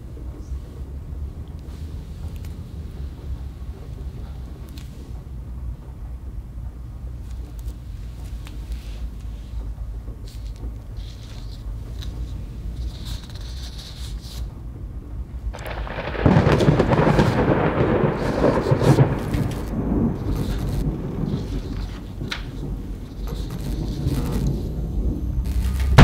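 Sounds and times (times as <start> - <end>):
loud crackling rumble: 0.0 - 26.0
faint scrapes and rustles: 7.4 - 14.6, 18.1 - 26.0
low rumble: 14.5 - 26.0.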